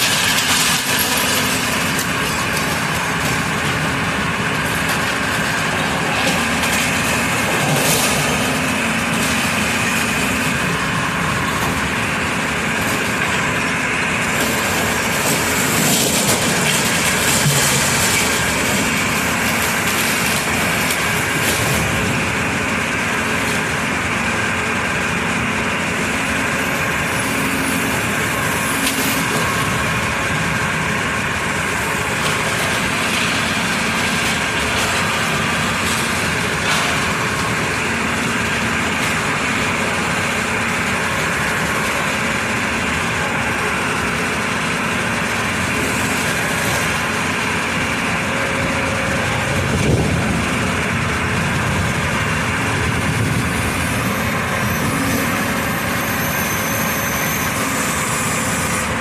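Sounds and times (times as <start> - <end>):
masonry cracking: 0.0 - 24.0
excavator diesel engine running: 0.0 - 59.0
pulverizer crushing brick walls: 0.0 - 59.0.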